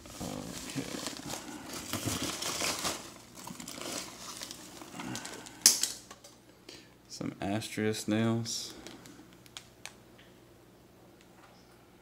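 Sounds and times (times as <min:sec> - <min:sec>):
packing peanuts rustling: 0:00.0 - 0:06.0.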